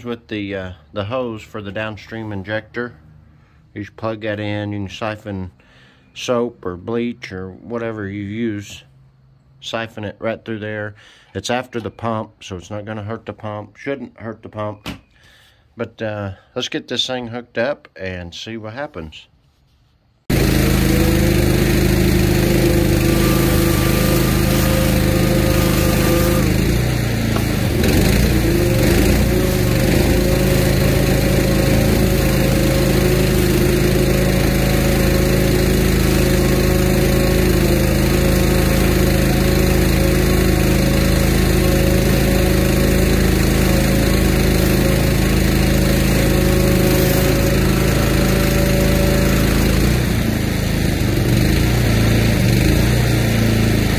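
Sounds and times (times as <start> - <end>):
engine running under load: 20.3 - 53.9.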